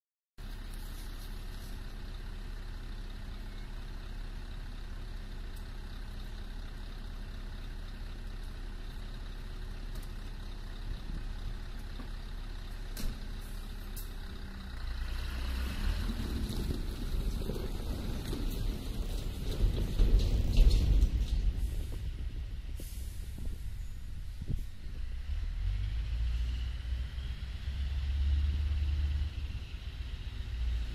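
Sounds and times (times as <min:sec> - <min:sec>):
truck engine idling: 0:00.4 - 0:26.0.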